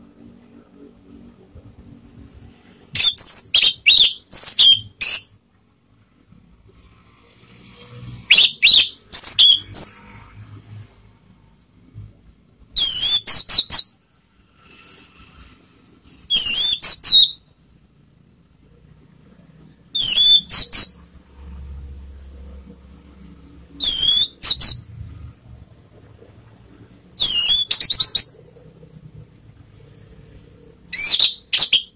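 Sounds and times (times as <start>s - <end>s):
bird singing high whistled notes: 2.9s - 5.3s, 8.2s - 10.1s, 12.8s - 14.0s, 16.3s - 17.4s, 20.0s - 21.0s, 23.8s - 24.9s, 27.2s - 28.4s, 30.9s - 31.9s.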